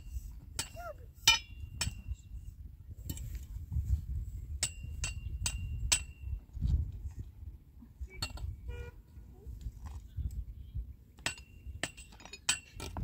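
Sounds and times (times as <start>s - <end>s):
metal-on-metal clanks: 0.5s - 2.3s, 4.6s - 6.4s, 8.1s - 8.6s, 11.2s - 13.0s.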